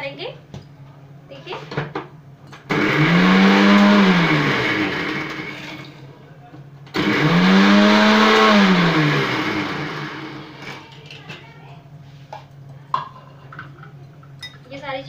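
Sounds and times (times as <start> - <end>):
mixer grinder motor: 2.7 - 6.0, 6.9 - 11.0.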